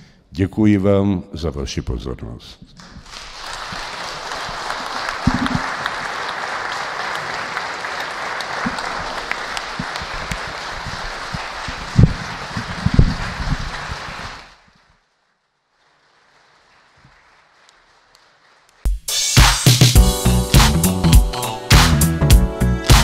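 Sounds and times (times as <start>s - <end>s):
hall applauding: 2.8s - 14.7s, 15.8s - 18.9s.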